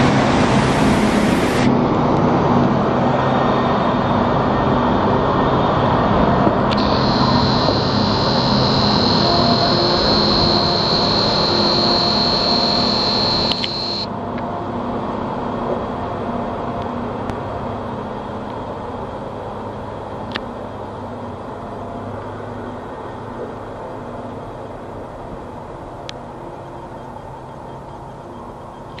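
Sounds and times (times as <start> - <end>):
faint clicks: 6.7 - 14.1
high steady whine: 6.7 - 14.2.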